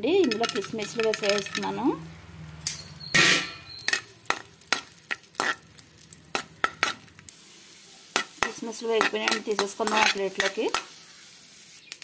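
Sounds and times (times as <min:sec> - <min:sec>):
raisins sizzling in a pan: 0:00.0 - 0:12.0
spoon clinking and scraping a pan: 0:00.2 - 0:01.8, 0:02.7 - 0:07.1, 0:08.1 - 0:10.9.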